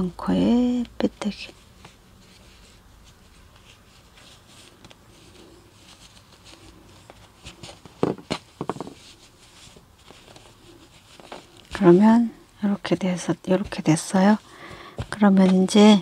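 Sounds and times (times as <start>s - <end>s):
rustling of yarn: 0.0s - 16.0s
soft knocks: 8.0s - 9.0s.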